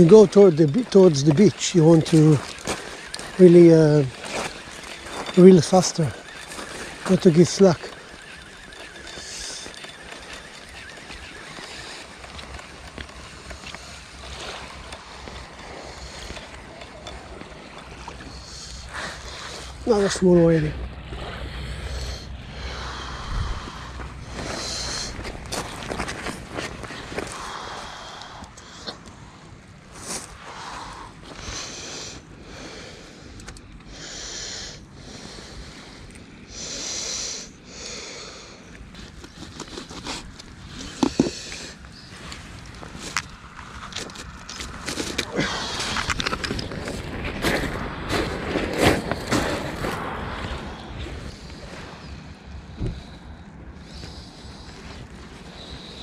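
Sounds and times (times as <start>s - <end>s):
fishing reel cranking: 0.0s - 20.2s
wind rumbling on microphone: 0.0s - 30.0s, 38.8s - 56.0s
faint wavering whine: 0.0s - 48.4s.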